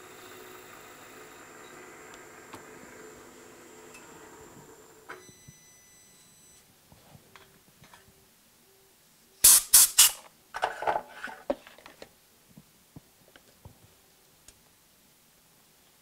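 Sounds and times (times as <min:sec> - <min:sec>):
hissing spray bursts: 0:09.4 - 0:10.2
rustling scraping handling noise: 0:10.1 - 0:12.1.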